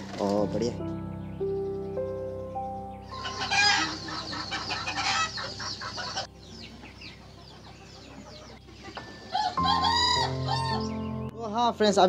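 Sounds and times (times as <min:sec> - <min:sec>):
chickens clucking: 0:03.1 - 0:11.2.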